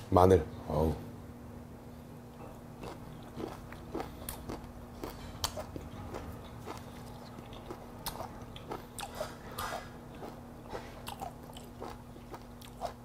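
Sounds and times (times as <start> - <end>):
person chewing wetly: 2.8 - 13.0.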